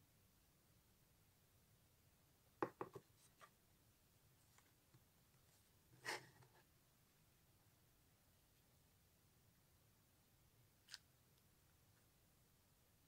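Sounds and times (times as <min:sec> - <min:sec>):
cardboard boxes tapping on desk: 0:02.6 - 0:03.1.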